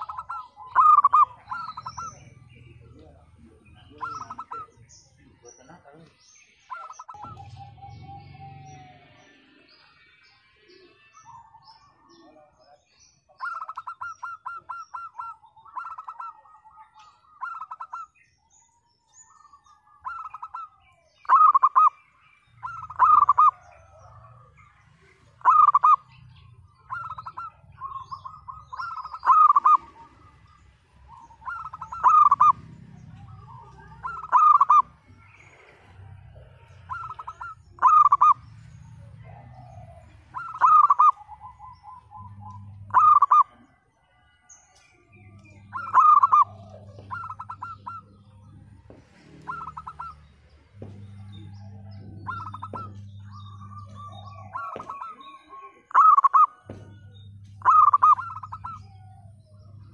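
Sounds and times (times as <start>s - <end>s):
dove cooing: 0.0s - 5.0s, 6.7s - 9.1s, 13.3s - 18.2s, 19.2s - 44.2s, 45.2s - 59.9s
low hum: 41.2s - 43.3s, 45.1s - 54.9s, 56.7s - 59.9s.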